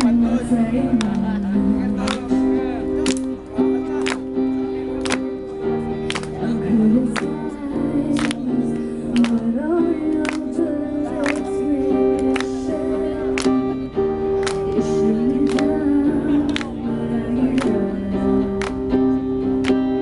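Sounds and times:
woman singing: 0.0 - 2.1, 6.5 - 19.2
acoustic guitar strumming: 0.0 - 20.0.

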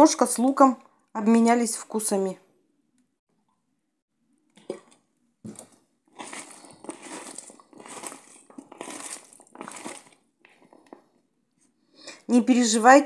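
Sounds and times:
wet crunching of potato slices: 4.6 - 11.1.

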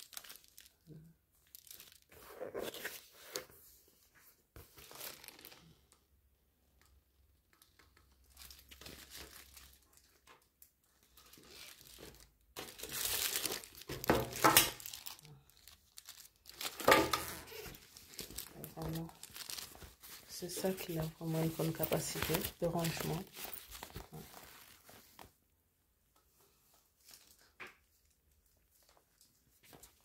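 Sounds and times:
plastic film crinkling: 0.0 - 3.4, 4.7 - 5.7, 7.6 - 25.3.

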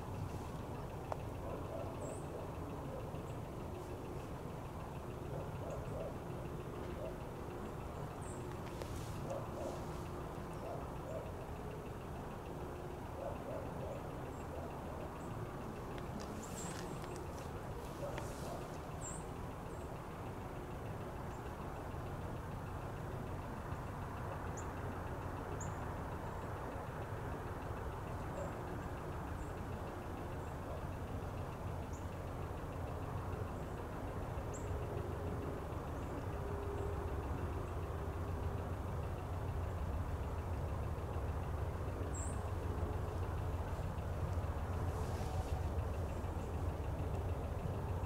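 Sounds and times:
distant diesel locomotive rumble: 0.0 - 48.0.

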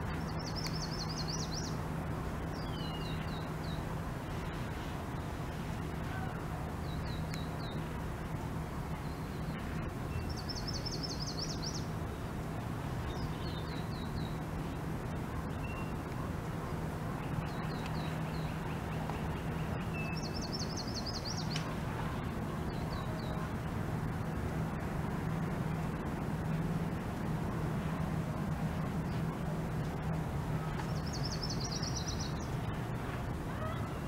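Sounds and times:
songbirds trilling: 0.0 - 8.0, 8.8 - 24.4, 30.5 - 34.0
steady low hum: 0.0 - 34.0.

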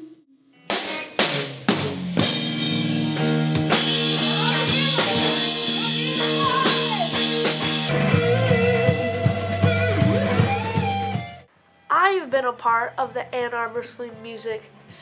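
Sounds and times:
guitar-led music: 0.5 - 11.5
live rock band playing: 0.7 - 11.5.

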